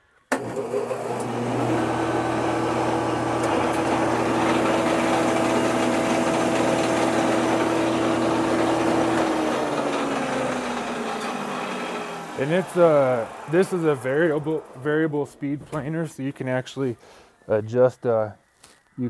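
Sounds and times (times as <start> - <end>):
planer motor humming: 0.3 - 15.2.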